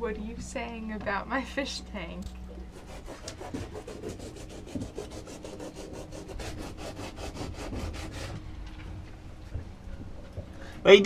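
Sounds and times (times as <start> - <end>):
sandpaper rubbing on wood: 2.8 - 8.3.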